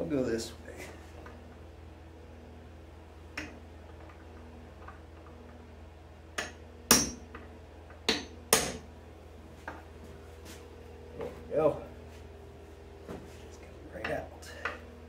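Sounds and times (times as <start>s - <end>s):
hammer tapping metal punch: 6.4s - 7.4s, 8.1s - 8.8s.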